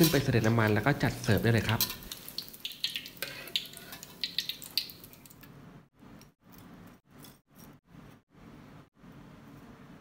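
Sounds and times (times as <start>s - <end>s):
hot oil crackling in a wok: 0.0s - 5.4s.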